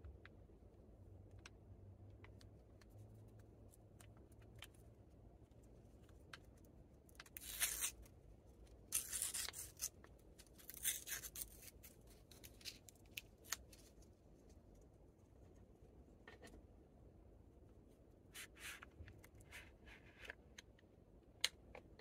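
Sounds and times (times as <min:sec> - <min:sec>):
paper wrapper tearing: 0:07.2 - 0:08.1, 0:08.9 - 0:13.8.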